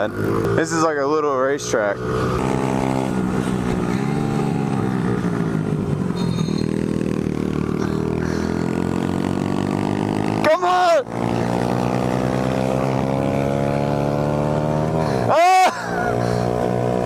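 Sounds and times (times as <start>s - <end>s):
small motorbike engine revving: 6.1s - 10.5s, 11.1s - 17.0s.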